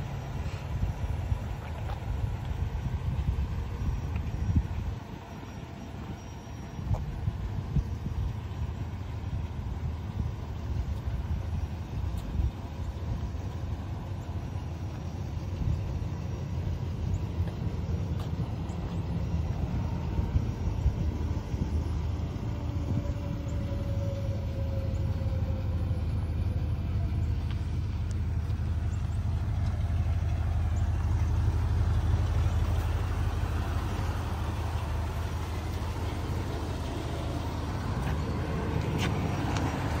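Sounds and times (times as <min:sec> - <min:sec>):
truck engine idling: 0:00.0 - 0:40.0.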